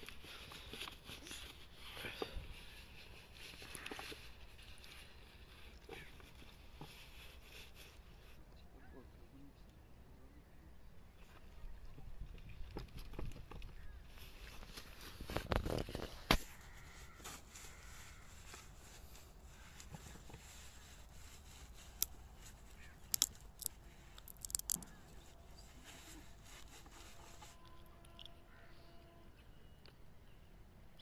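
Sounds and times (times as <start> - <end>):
hands rubbing metal pipe: 16.6 - 28.5.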